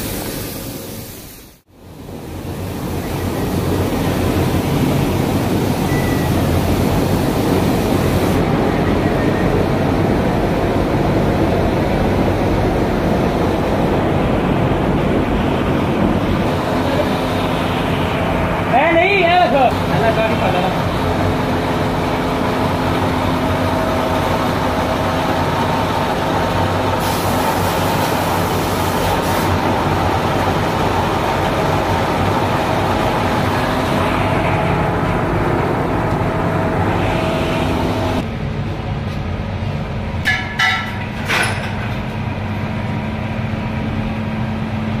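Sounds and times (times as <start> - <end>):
factory machinery hum: 0.0 - 45.0.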